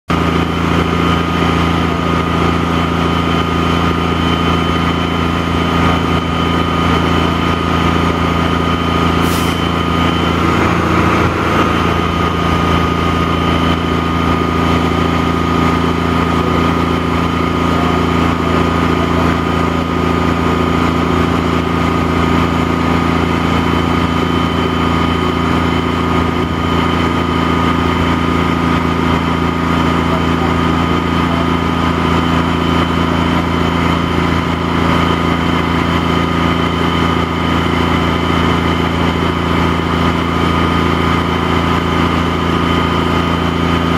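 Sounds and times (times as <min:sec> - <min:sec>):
crane diesel engine running: 0:00.1 - 0:43.9
high whine: 0:07.4 - 0:15.3
short hiss: 0:09.2 - 0:09.7.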